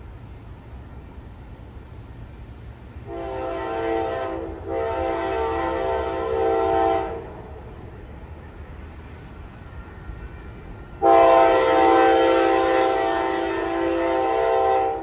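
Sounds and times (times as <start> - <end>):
freight train rumble: 0.0 - 15.0
locomotive air horn: 3.1 - 7.4, 11.0 - 15.0.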